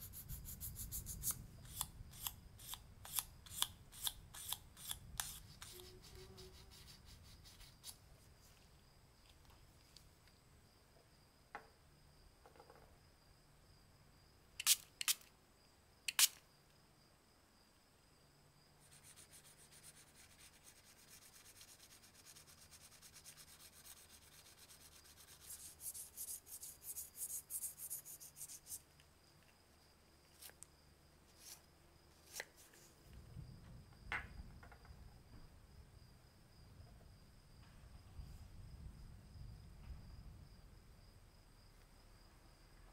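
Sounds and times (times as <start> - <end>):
sandpaper rubbing on metal: 0.0 - 8.0, 18.9 - 28.8
faint steady high tone: 5.6 - 6.8.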